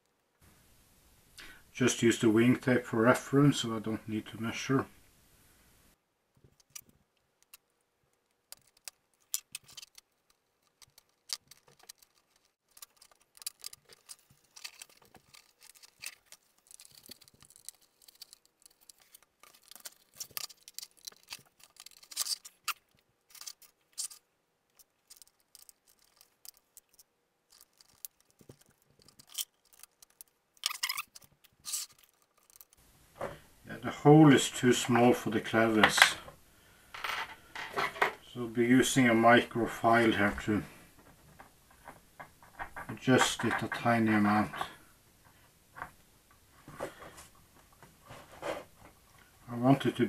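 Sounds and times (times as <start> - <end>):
soft clicks taps and scrapes: 40.9 - 43.8.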